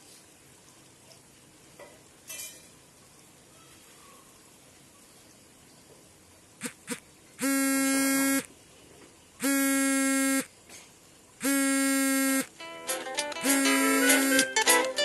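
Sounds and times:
low electronic buzzer: 6.6s - 8.5s, 9.4s - 10.5s, 11.4s - 12.5s, 13.4s - 14.4s.

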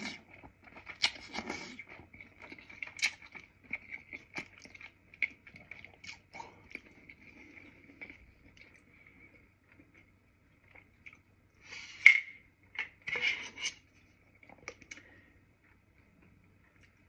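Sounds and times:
person chewing: 0.0s - 12.2s.

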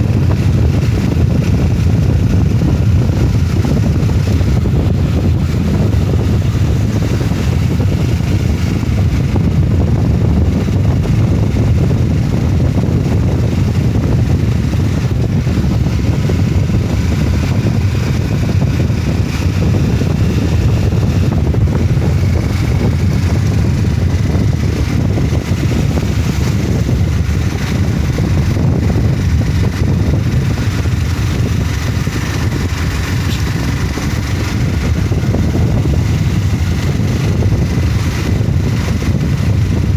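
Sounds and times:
motorcycle engine running: 0.0s - 39.9s
wind on microphone: 0.0s - 39.9s.

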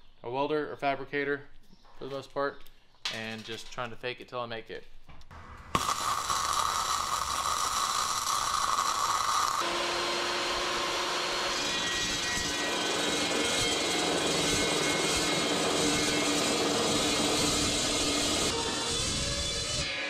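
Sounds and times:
welder arc crackling and hissing: 5.4s - 9.7s
chop saw motor humming: 5.4s - 19.8s
saw blade cutting steel: 5.5s - 20.0s.

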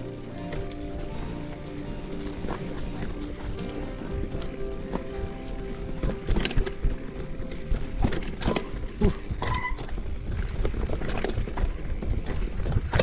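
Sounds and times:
bike frame rattling: 0.0s - 13.0s
wind rumble on microphone: 2.3s - 13.0s
short squeal: 9.4s - 9.9s.

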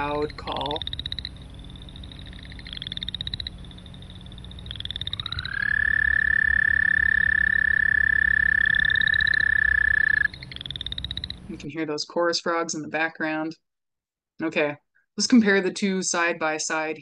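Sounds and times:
frogs giving pulsed trills: 0.0s - 11.6s
toad trilling: 0.0s - 11.6s.

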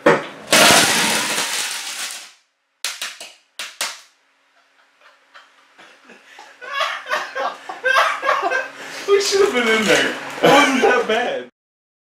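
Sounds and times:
lighters exploding in microwave: 0.5s - 4.1s
sharp cracks: 0.5s - 4.2s.

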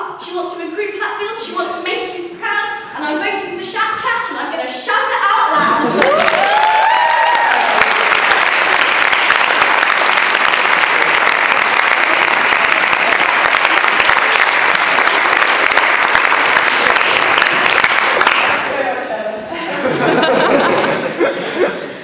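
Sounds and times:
audience applauding: 5.8s - 18.7s.

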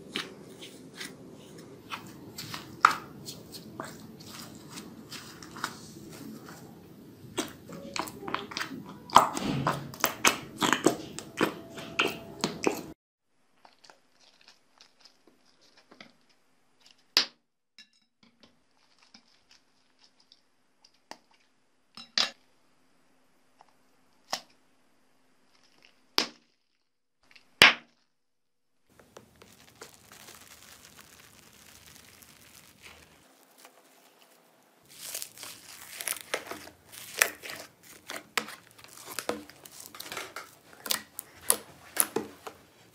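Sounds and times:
slime stirred with spoon crackling: 0.0s - 17.2s, 18.2s - 22.4s, 25.4s - 28.1s, 28.9s - 42.9s
foam crunching in plastic box: 28.9s - 42.6s.

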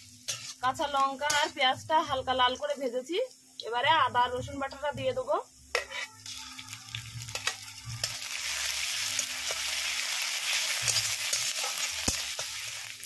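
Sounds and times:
metal spatula scraping pan: 0.0s - 1.6s
paste sizzling in hot oil: 0.0s - 3.8s, 5.6s - 13.0s.

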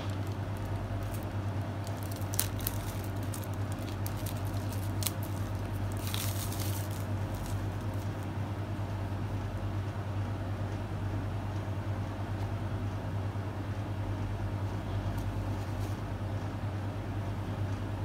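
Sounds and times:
plastic wrap crinkling: 0.0s - 8.3s
steady low hum: 0.0s - 18.0s.

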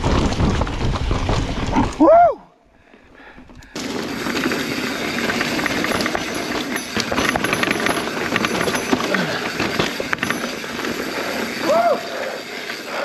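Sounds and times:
mountain bike tyres rushing: 0.0s - 13.0s
bike clicks and rattles: 3.0s - 13.0s.

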